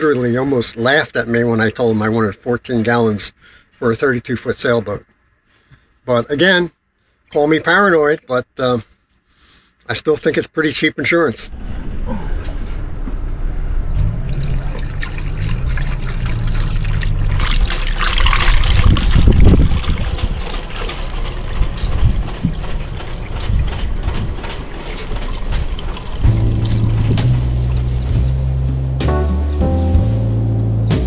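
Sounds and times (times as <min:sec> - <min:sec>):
low rumble: 0:11.4 - 0:31.0
rushing splashing water: 0:13.9 - 0:28.4
music: 0:26.2 - 0:31.0.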